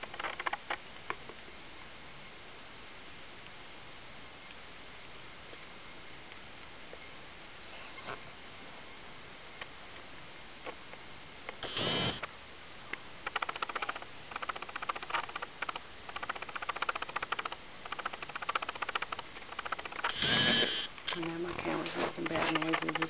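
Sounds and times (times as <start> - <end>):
camera lens motor whirring: 11.6 - 12.2, 16.2 - 21.2
rapid mechanical ticking: 11.6 - 12.3, 13.2 - 23.0.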